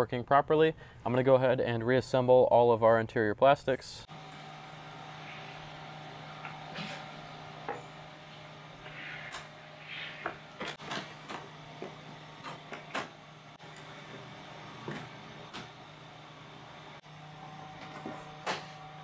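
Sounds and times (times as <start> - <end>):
steady low hum: 4.0 - 19.0.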